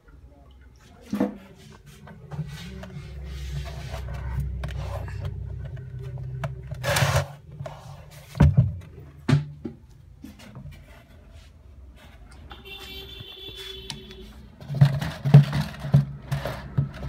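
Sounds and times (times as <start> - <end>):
low rumbling: 2.5 - 6.9.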